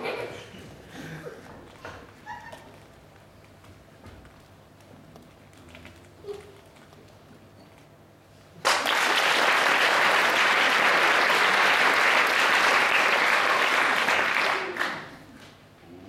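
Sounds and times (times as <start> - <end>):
audience applause: 8.6 - 15.2.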